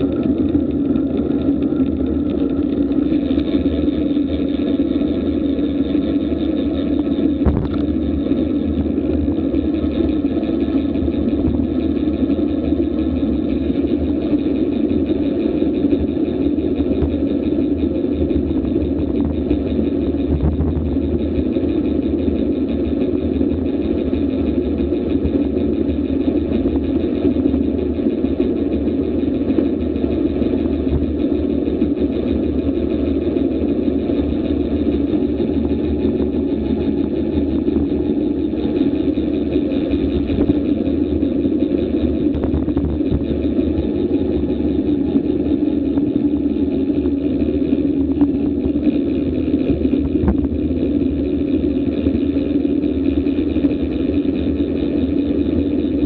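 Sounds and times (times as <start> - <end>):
wind rush: 0.0 - 10.3
faint bike ticks: 0.0 - 56.0.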